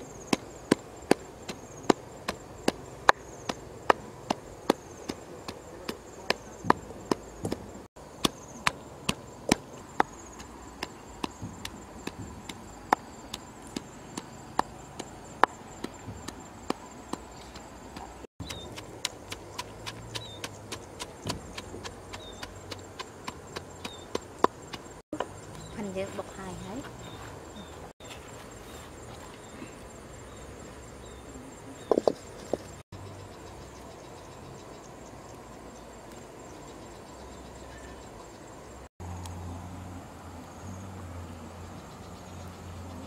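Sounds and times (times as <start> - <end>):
wooden pestle pounding in mortar: 0.7 - 24.9.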